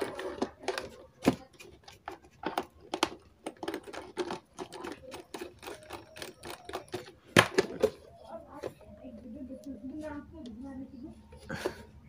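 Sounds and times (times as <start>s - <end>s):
hands clicking and tapping parts: 0.0s - 8.0s.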